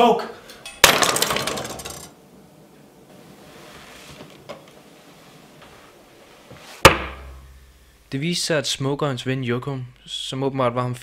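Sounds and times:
sharp bang: 6.8s - 7.6s.

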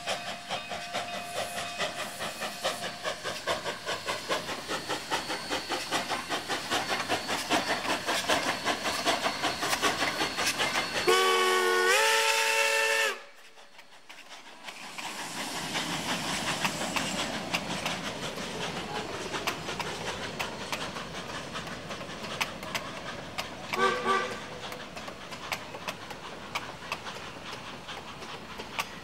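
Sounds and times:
passing train running noise: 0.0s - 29.0s
steam locomotive exhaust beats: 0.0s - 29.0s
steam whistle: 10.4s - 13.4s, 23.7s - 24.5s.

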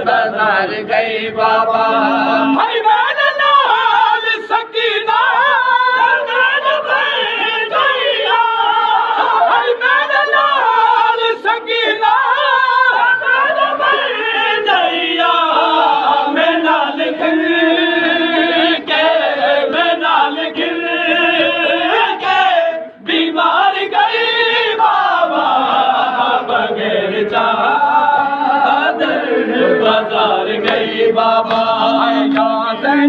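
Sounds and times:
men chanting together: 0.0s - 33.0s
sharp rhythmic slaps: 29.9s - 33.0s.

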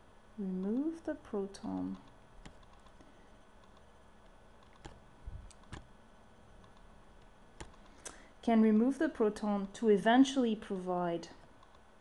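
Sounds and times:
stylus clicks on tablet: 1.6s - 3.9s.

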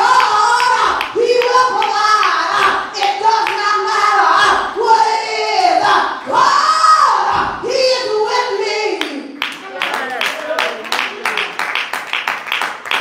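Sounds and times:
woman singing through a microphone: 0.0s - 9.4s.

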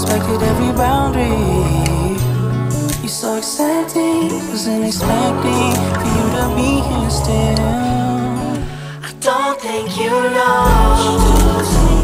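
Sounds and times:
song with sung vocals: 0.0s - 12.0s
deep pulsing bass notes: 10.7s - 12.0s.

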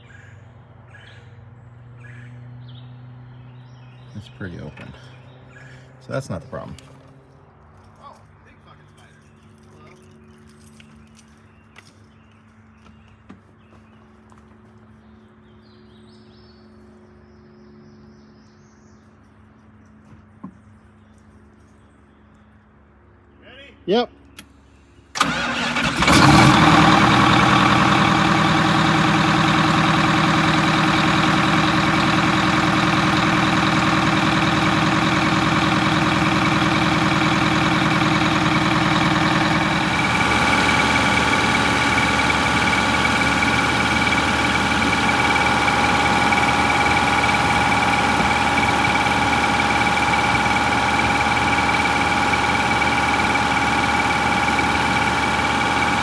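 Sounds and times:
diesel bus engine idling: 25.2s - 56.0s.

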